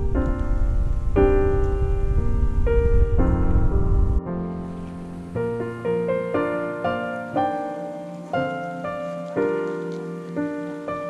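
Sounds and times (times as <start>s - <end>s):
slow solo piano: 0.0s - 11.0s.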